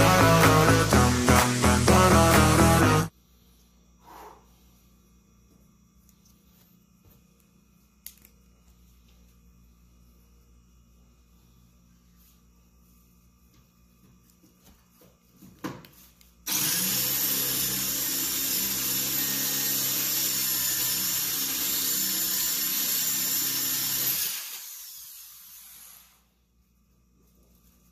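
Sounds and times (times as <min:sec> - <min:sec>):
power tool motor humming: 0:00.0 - 0:03.1, 0:16.5 - 0:26.1.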